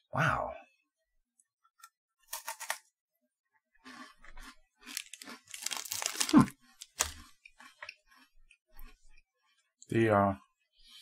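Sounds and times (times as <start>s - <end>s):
crunching of a biscuit being chewed: 3.8s - 9.3s.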